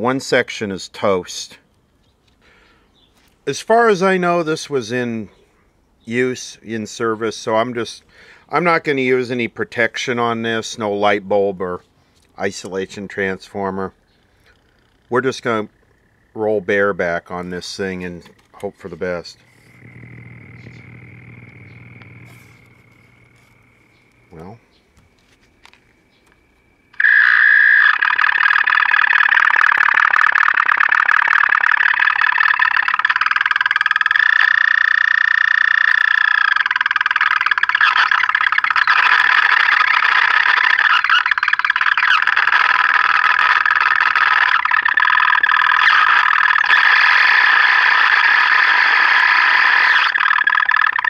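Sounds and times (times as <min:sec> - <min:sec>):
radio speaker squealing: 0:12.6 - 0:51.0.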